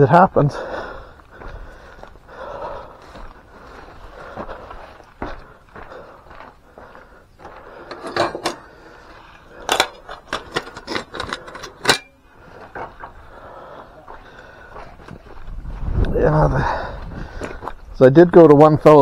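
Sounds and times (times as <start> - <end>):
metal clinking and clanking: 7.9 - 8.7, 9.7 - 12.2.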